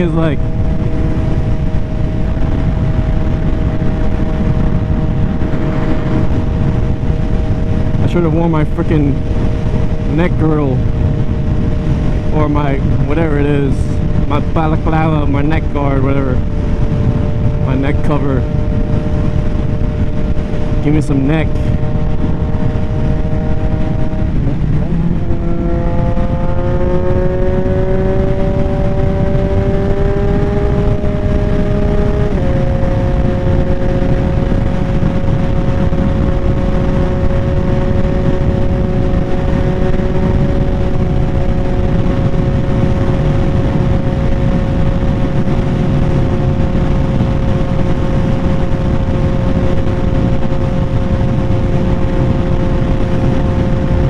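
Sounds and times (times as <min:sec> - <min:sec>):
motorcycle engine running loud: 0:00.0 - 0:54.0.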